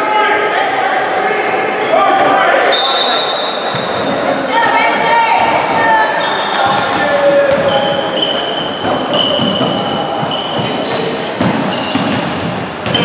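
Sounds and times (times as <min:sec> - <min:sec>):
sneakers squeaking on hardwood: 0:03.1 - 0:04.2, 0:05.8 - 0:13.0
basketball bouncing: 0:06.6 - 0:07.8, 0:08.8 - 0:13.0.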